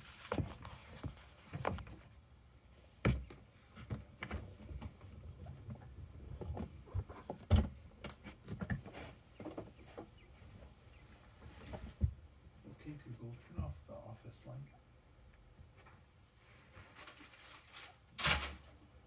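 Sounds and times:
birds tapping and scuffing: 0.0 - 2.2, 2.8 - 12.2.

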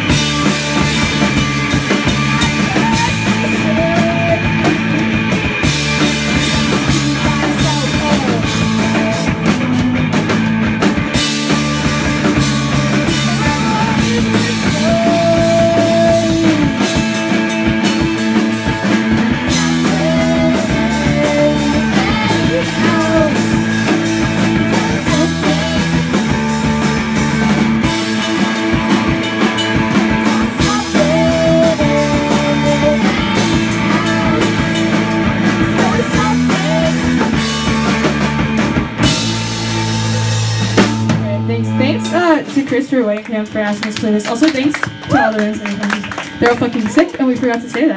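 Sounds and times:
drum kit: 0.0 - 47.9
electric bass: 0.0 - 47.9
electric guitar: 0.0 - 47.9
vocals sung into microphones: 13.1 - 16.9, 19.4 - 23.6, 30.2 - 34.8, 35.6 - 37.5.

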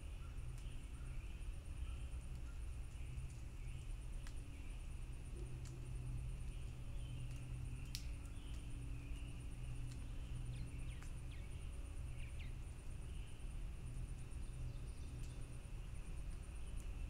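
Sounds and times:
high insect drone: 0.0 - 17.0
light ticks: 0.5 - 0.7, 2.2 - 4.4, 5.5 - 11.4, 15.1 - 15.4.

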